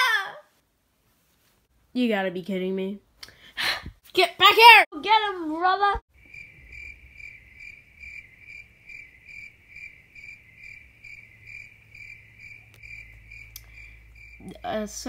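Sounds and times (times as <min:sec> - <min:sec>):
cricket chirping: 0:06.1 - 0:15.0.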